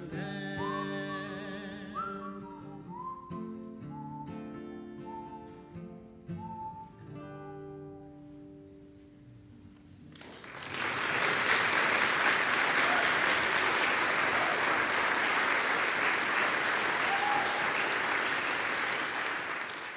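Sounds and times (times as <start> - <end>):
audience applause: 10.1 - 19.9.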